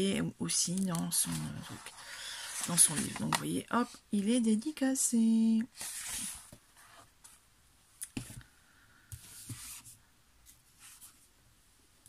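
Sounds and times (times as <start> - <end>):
book cover rustling: 0.8 - 3.6, 5.7 - 7.3
soft taps on book: 8.1 - 8.5.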